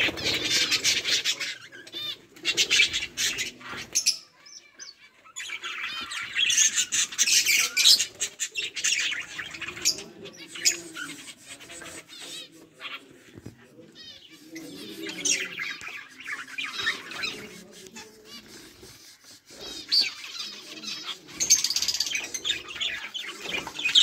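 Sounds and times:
budgerigars chirping: 13.9 - 24.0.

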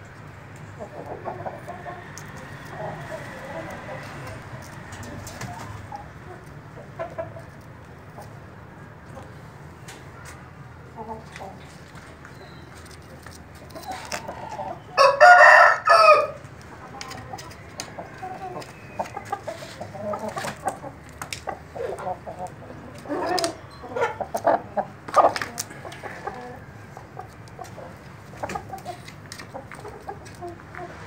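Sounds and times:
chickens clucking: 0.1 - 31.0
rooster crowing: 14.9 - 16.4.

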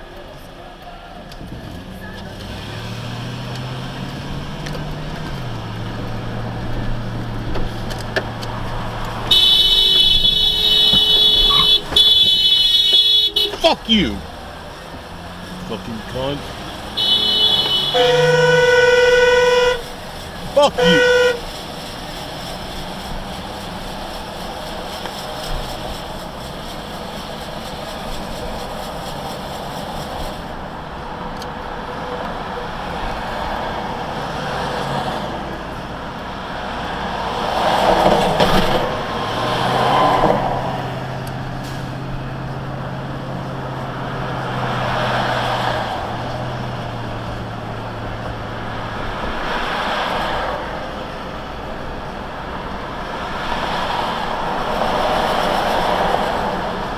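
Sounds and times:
low engine hum: 0.0 - 19.1
vehicle engine and tyre noise: 0.0 - 56.9.

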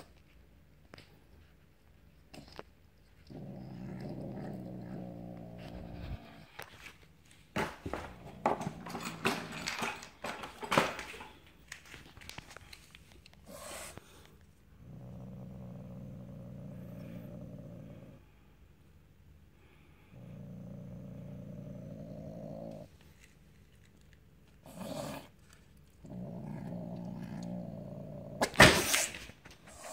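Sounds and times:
cat growling: 3.2 - 6.6, 13.4 - 14.2, 14.8 - 18.2, 20.1 - 22.9, 24.6 - 25.4, 26.0 - 29.1
sharp knocks and clatter: 7.6 - 11.4.

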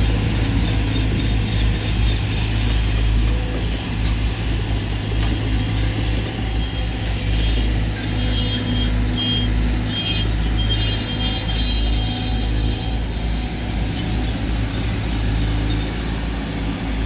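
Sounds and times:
excavator diesel engine running: 0.0 - 17.0
hydraulic whine: 0.0 - 17.0
short high squeals: 6.3 - 13.1.

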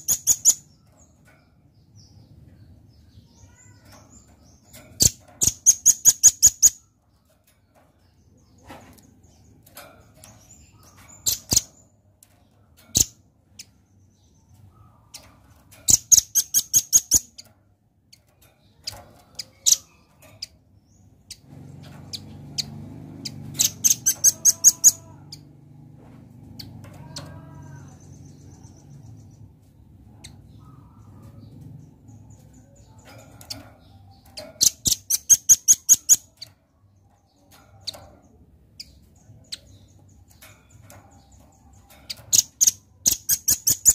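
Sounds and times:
bird calling sharp high chips: 23.3 - 25.1.

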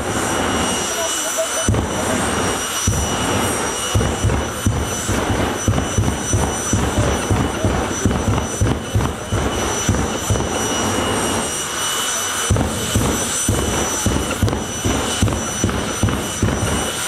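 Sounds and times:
jet engine turbine whine: 0.0 - 17.0.

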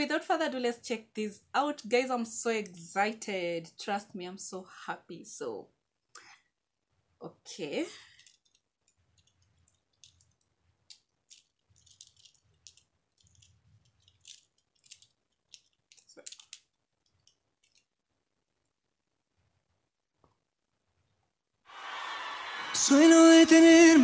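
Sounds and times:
earphones clicking and rattling: 8.0 - 18.0.

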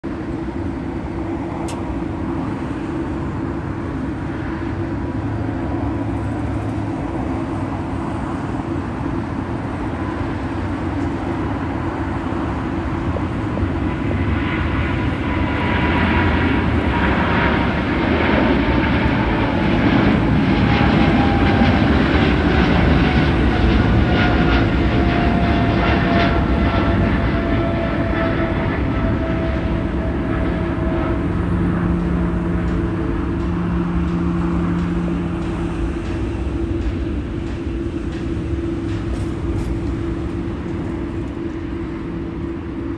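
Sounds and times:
jet engine whine: 0.0 - 42.9
jet engines deep rumble: 0.0 - 42.9
jet engine crackle: 13.4 - 42.9.

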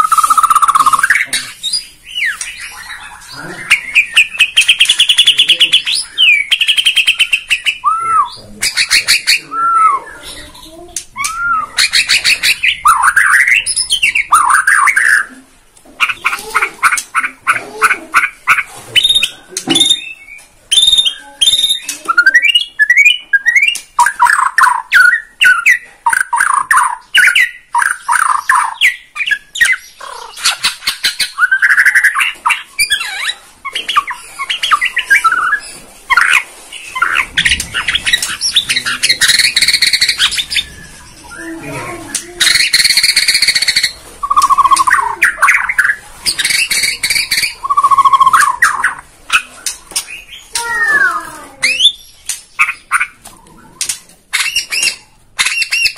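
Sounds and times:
songbird singing whistled phrases: 0.0 - 15.3, 19.0 - 55.9.

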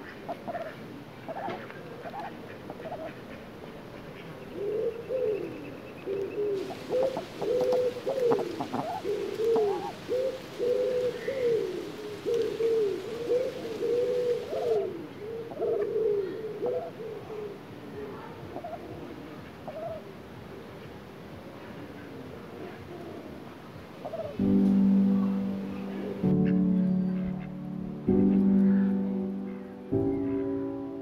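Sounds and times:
pigeon cooing: 4.2 - 20.1, 24.0 - 30.5.

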